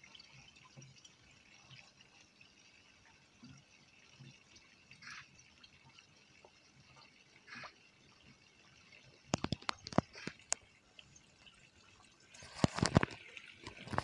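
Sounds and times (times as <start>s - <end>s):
pond water trickling and dripping: 0.0s - 14.0s
small water splash: 4.9s - 14.0s.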